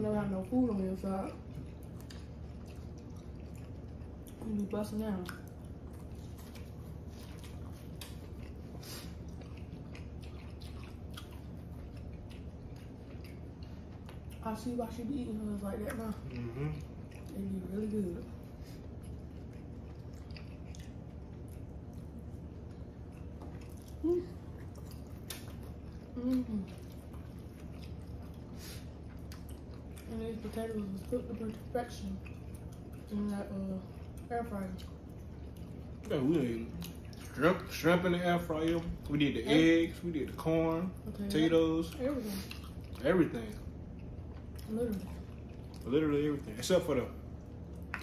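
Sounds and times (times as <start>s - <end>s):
low steady hum: 0.0s - 48.0s
wet chewing and smacking: 0.0s - 48.0s
person humming mm: 16.4s - 16.8s.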